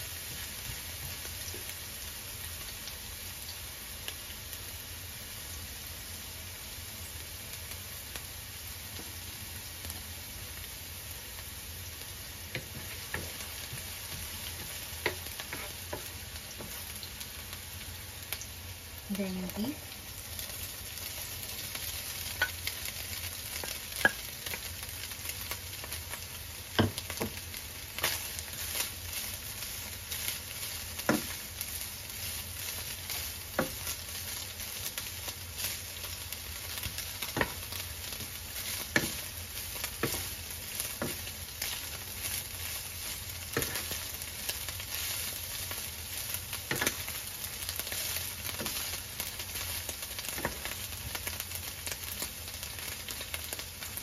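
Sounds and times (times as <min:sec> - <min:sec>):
meat sizzling in oil: 0:00.0 - 0:54.0
wooden spoon scraping a pan: 0:12.5 - 0:17.0, 0:28.0 - 0:36.1, 0:36.7 - 0:50.8.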